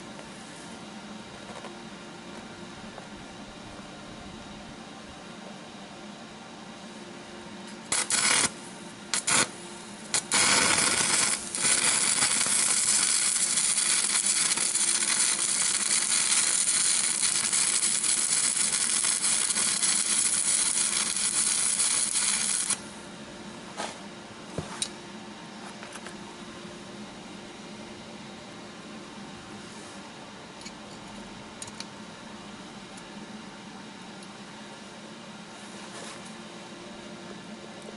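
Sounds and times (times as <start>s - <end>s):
electric arc welding: 7.8s - 22.8s.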